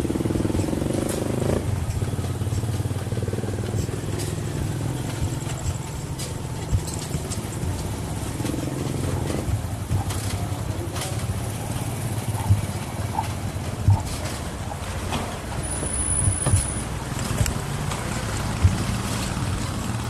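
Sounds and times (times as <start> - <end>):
bike tyre noise: 0.0 - 20.0
sharp knocks: 11.8 - 15.3.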